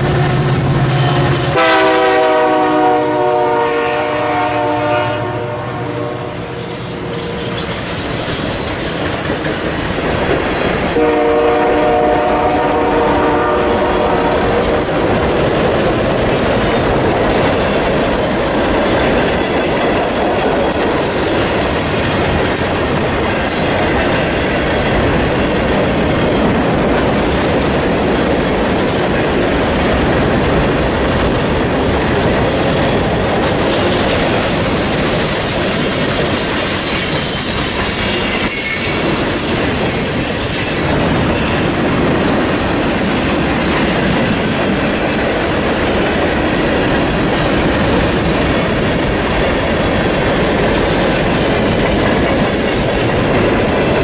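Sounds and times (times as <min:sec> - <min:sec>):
freight train wheels rolling on rails: 0:00.0 - 0:54.0
high-pitched wheel squeal: 0:36.0 - 0:41.0.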